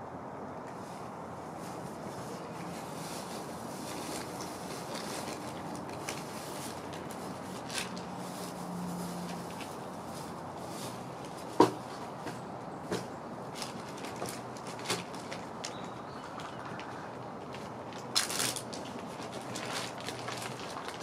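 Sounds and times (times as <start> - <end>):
cat crunching dry kibble: 13.6 - 21.0.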